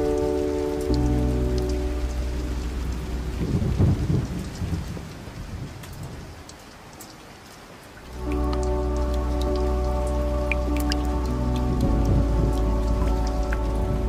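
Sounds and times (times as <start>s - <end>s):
steady rain falling: 0.0s - 14.0s
deep rumble of thunder: 2.6s - 6.4s, 11.2s - 14.0s.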